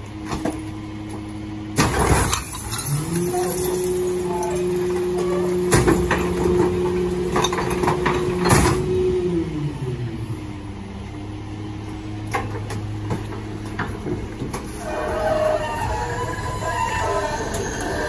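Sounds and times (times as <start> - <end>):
garbage truck engine: 0.0 - 18.0
metallic squeal: 14.7 - 18.0.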